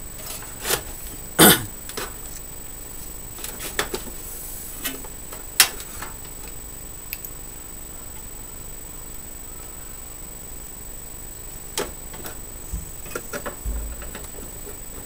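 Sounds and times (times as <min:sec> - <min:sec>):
cables clicking against metal case: 0:11.8 - 0:14.8.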